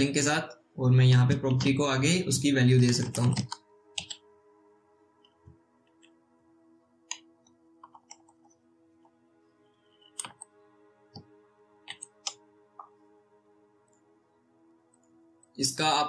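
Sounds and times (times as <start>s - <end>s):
faint background music: 0.0s - 16.0s
keyboard keystrokes clicking: 2.8s - 4.2s, 7.8s - 8.6s, 10.0s - 10.5s, 11.2s - 13.0s.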